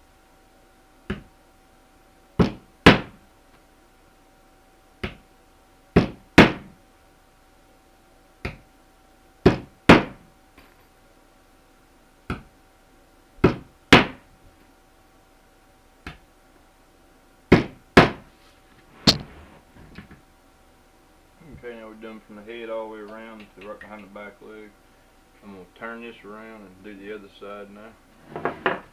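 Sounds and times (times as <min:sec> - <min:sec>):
hammer driving nails into wood: 0:09.4 - 0:10.2.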